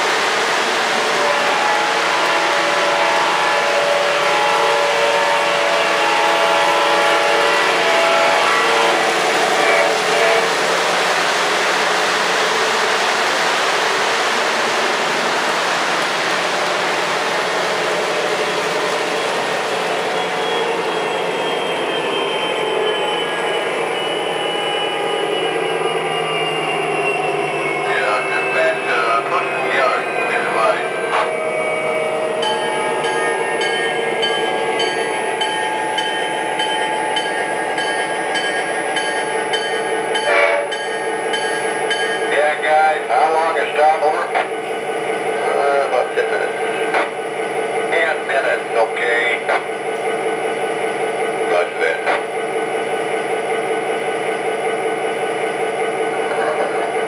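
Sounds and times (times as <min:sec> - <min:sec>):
model train diesel engine sound: 0:00.0 - 0:57.0.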